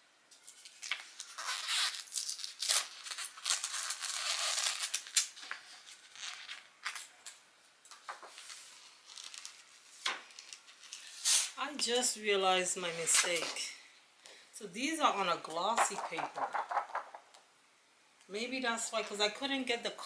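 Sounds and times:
paper rustling and scraping: 15.7s - 17.3s.

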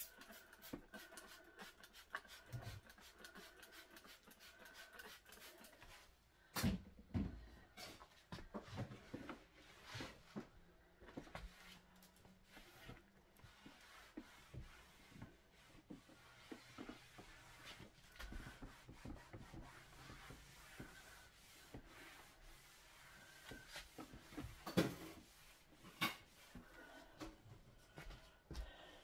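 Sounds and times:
cloth wiping a table: 11.1s - 27.2s.

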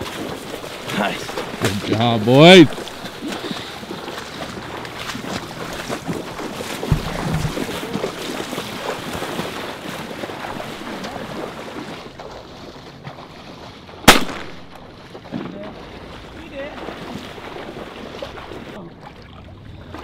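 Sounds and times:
boots splashing in water: 0.0s - 20.0s.

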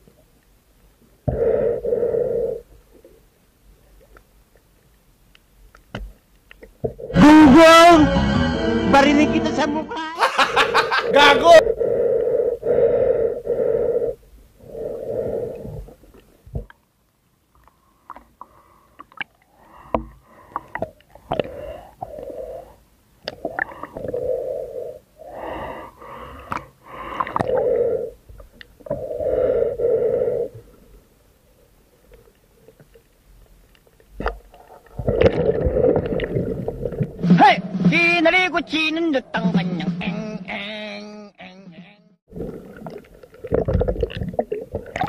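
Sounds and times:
wheezy breathing through snorkel: 1.3s - 2.7s, 11.1s - 16.0s, 18.5s - 22.9s, 23.6s - 30.9s.

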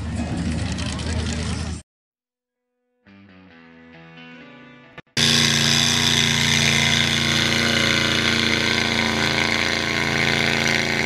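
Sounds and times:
truck engine running steadily: 0.0s - 1.8s, 5.2s - 11.0s.

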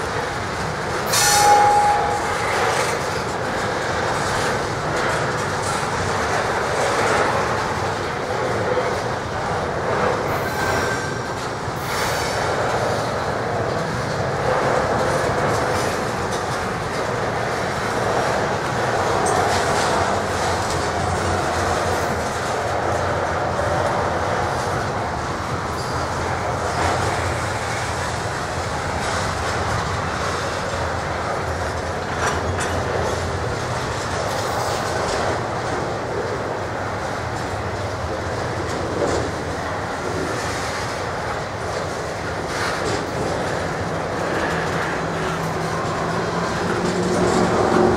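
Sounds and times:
train wheels rumbling on rails: 0.0s - 47.9s
high-pitched wheel squeals: 1.1s - 2.6s.

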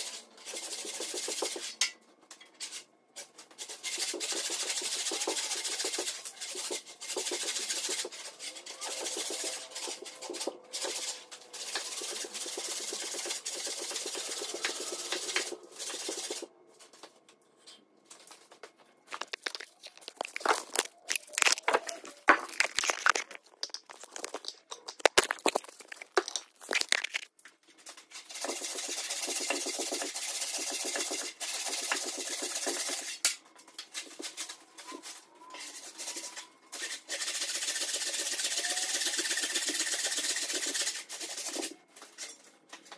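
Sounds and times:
sharp cracks and knocks: 19.1s - 27.3s.

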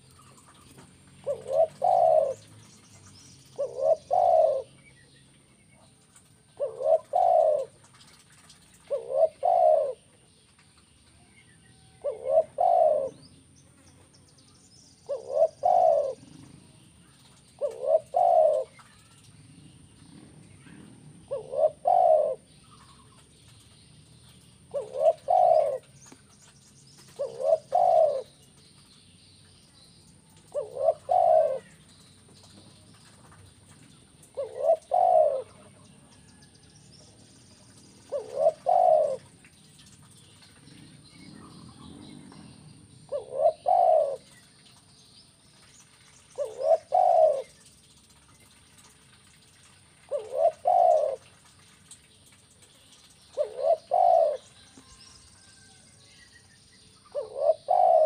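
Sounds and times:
dove cooing: 0.0s - 2.6s, 3.5s - 4.8s, 6.5s - 10.2s, 11.8s - 13.3s, 15.0s - 19.2s, 20.1s - 23.2s, 24.6s - 26.0s, 27.1s - 28.5s, 30.4s - 31.8s, 33.8s - 36.4s, 38.0s - 44.5s, 46.3s - 49.4s, 50.0s - 51.4s, 53.3s - 55.0s, 57.1s - 58.0s.

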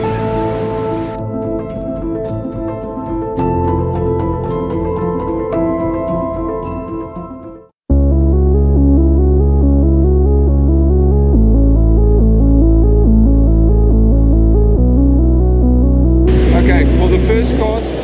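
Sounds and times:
long held bass notes: 0.0s - 1.9s, 7.9s - 18.0s
synthesizer arpeggio: 0.0s - 18.0s.

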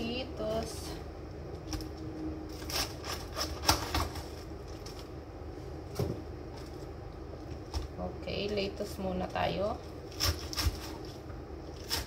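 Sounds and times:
knife cutting crunchy lettuce: 2.5s - 5.0s, 10.1s - 12.0s.

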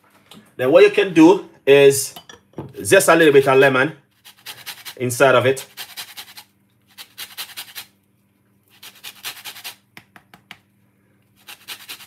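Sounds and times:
lemon rasping on metal grater: 4.2s - 7.9s, 8.7s - 9.8s, 11.4s - 12.0s.

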